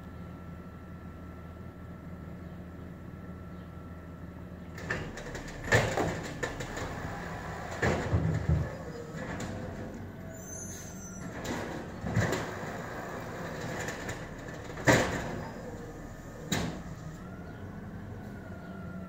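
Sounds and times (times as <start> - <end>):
garbage truck idling: 0.0 - 19.0
metallic clanks and bangs: 11.2 - 16.9.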